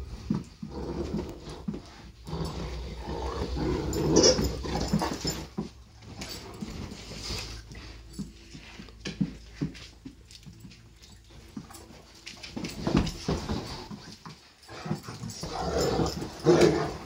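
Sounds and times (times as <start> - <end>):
dogs growling and vocalizing: 0.0 - 8.3, 12.6 - 17.0
paws scuffling on cushions: 0.0 - 17.0.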